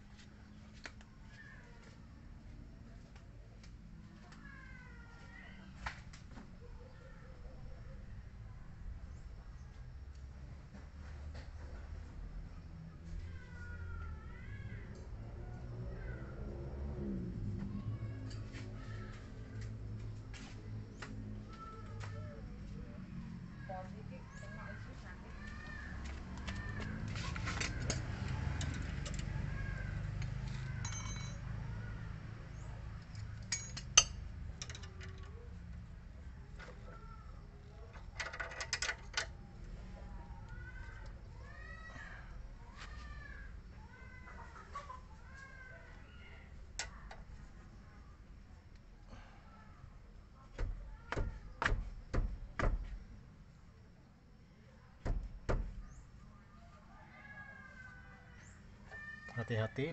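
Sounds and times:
wrenches clinking on metal: 30.2s - 31.6s, 33.1s - 35.4s, 37.9s - 39.3s.

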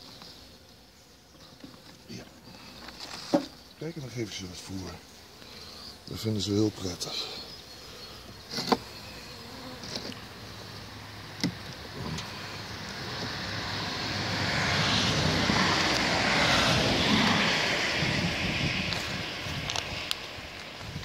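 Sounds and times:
wooden knocks of beehive frames: 1.6s - 3.6s, 8.2s - 8.9s, 11.4s - 12.2s
steady rushing noise: 11.9s - 21.0s.

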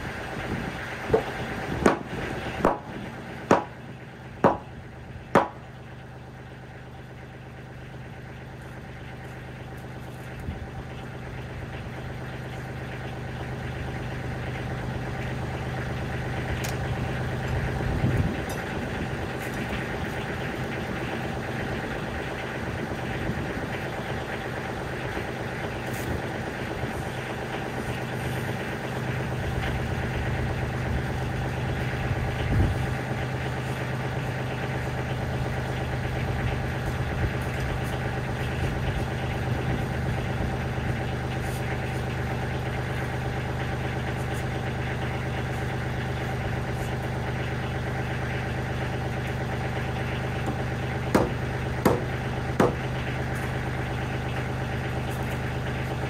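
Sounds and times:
diesel tractor engine idling: 0.0s - 56.0s
sledgehammer hitting timber: 1.1s - 3.8s, 4.4s - 4.7s, 5.4s - 5.7s, 50.5s - 52.9s.

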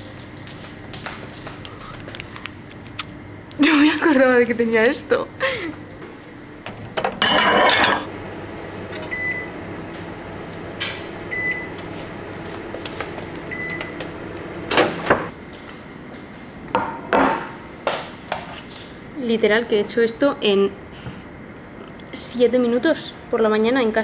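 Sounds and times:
steady low hum: 0.0s - 24.0s
microwave oven beeping: 6.6s - 15.3s.

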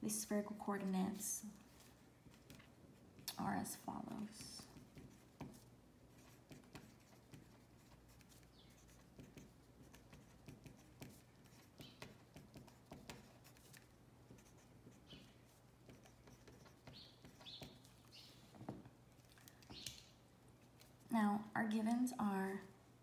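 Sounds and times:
low room hum: 0.0s - 23.0s
pen scratching on paper: 4.3s - 18.0s.

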